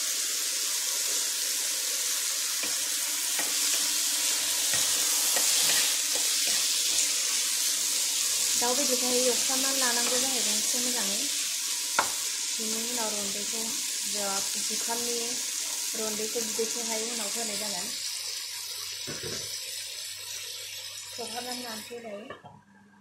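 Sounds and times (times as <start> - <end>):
chicken sizzling in frying pan: 0.0 - 22.2
spatula scraping pan: 3.4 - 7.4, 21.1 - 22.1.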